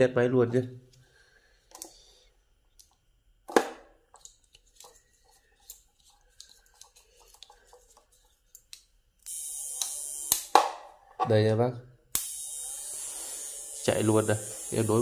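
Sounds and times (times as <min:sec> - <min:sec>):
inverter hissing buzz: 0:12.2 - 0:15.0.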